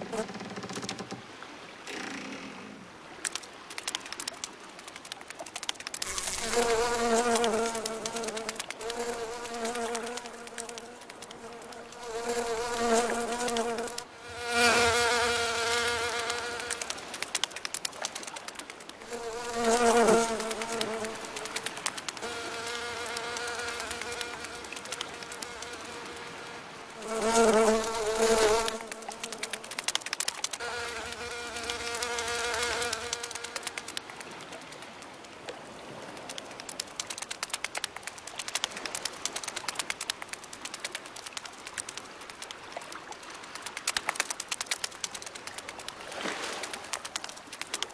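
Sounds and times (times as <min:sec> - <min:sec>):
cartoon fly buzzing: 0:06.1 - 0:14.0.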